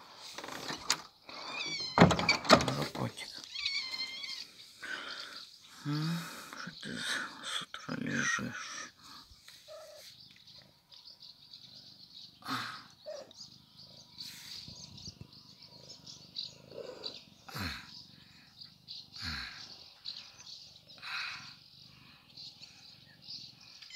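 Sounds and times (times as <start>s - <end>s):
high chirping: 3.2s - 23.9s
cat meowing: 3.5s - 4.5s.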